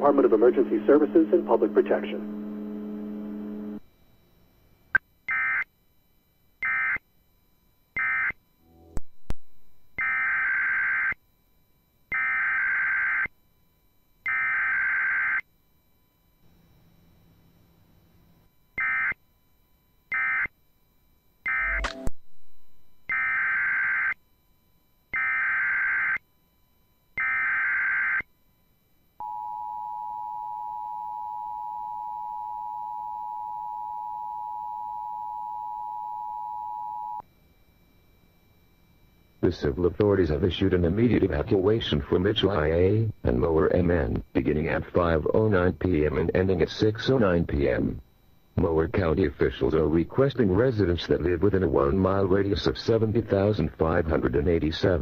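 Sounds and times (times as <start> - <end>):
data bursts: 0.0 - 3.8, 21.5 - 23.6
two-tone attention signal: 21.5 - 23.2.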